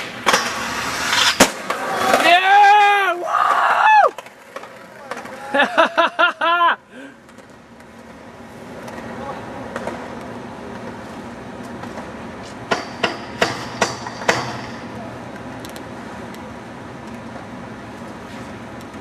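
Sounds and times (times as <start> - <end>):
steady background hum: 0.0 - 19.0
skateboard clacking on concrete: 4.1 - 5.6, 7.2 - 11.0.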